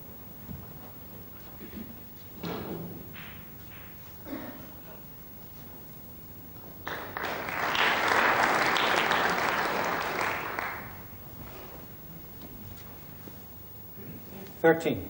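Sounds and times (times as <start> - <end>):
audience applauding: 6.8 - 11.2.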